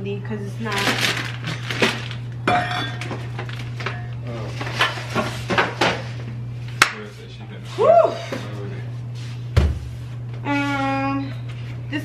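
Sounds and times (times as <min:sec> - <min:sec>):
steady low hum: 0:00.0 - 0:12.0
dishware and packages clinking: 0:00.7 - 0:05.3.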